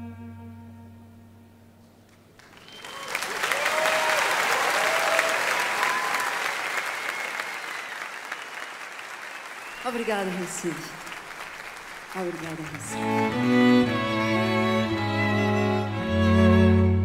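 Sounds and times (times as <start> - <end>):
audience applause: 2.3 - 15.3
whistling: 2.4 - 3.3, 5.8 - 10.4.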